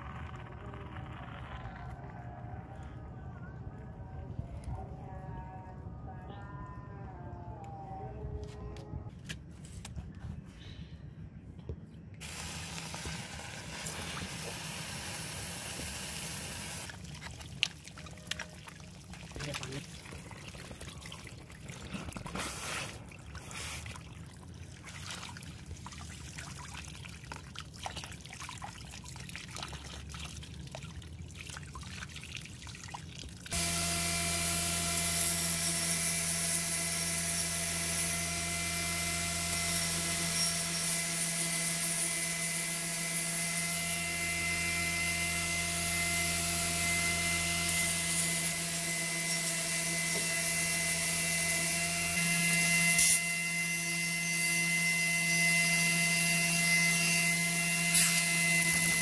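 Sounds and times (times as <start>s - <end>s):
belt grinder whining: 33.5s - 59.0s.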